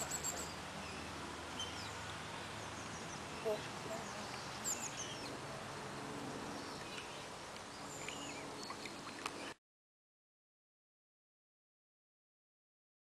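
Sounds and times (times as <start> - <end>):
outdoor background noise: 0.0 - 9.6.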